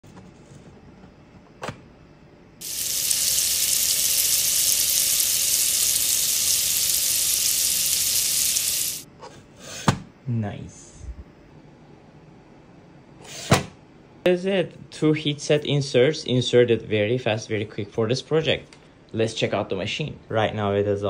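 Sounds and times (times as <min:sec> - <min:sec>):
hot metal insert sizzling in plastic: 0:02.6 - 0:09.0.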